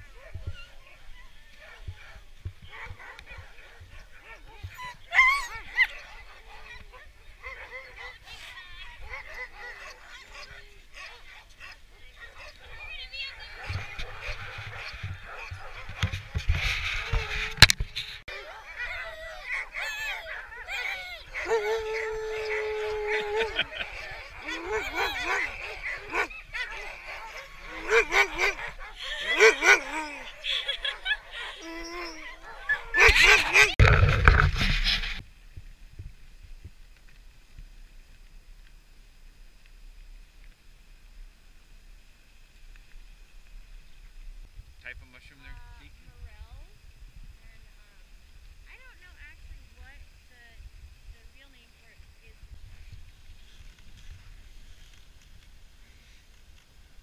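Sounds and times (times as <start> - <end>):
sled dogs whining and yipping: 0.0 - 35.0.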